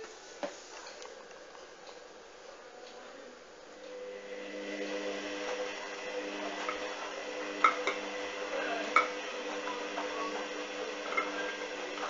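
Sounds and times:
washing machine motor humming: 3.6s - 12.0s.

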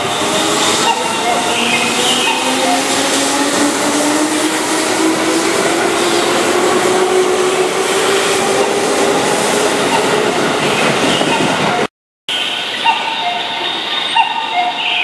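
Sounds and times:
train cars rolling: 0.0s - 11.9s.

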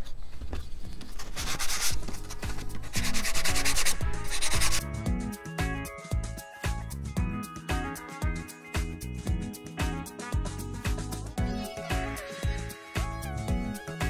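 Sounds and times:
sanding block on plywood: 1.4s - 2.0s, 2.8s - 4.8s
background music with beat: 1.6s - 14.0s.

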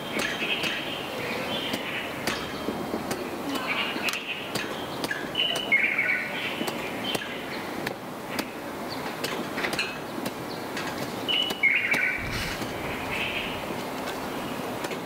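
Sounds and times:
bird chirping: 0.0s - 2.8s, 3.6s - 7.7s, 10.5s - 13.7s.

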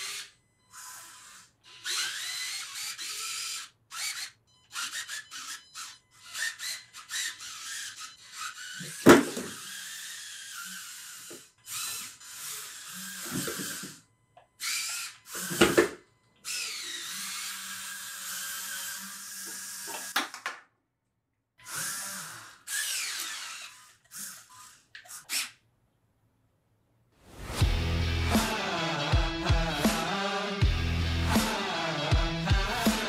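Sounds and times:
small electric motors whining: 0.0s - 20.2s, 21.6s - 25.6s.

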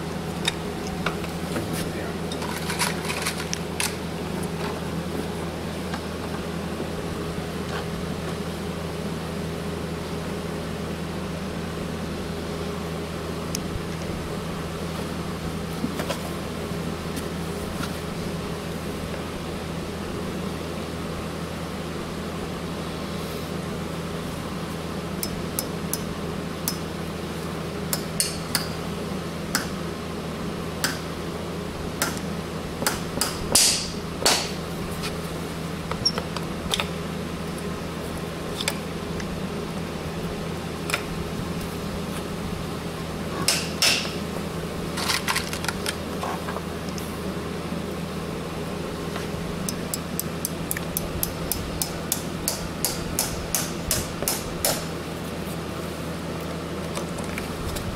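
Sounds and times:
hammer tapping nails into horseshoe: 32.8s - 34.6s, 43.5s - 44.2s, 49.7s - 54.9s.

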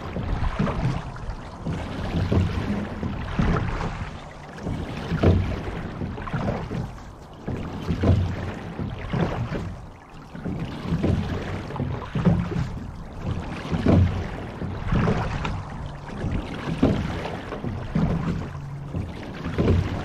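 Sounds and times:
water splashing along a hull: 0.0s - 20.0s.

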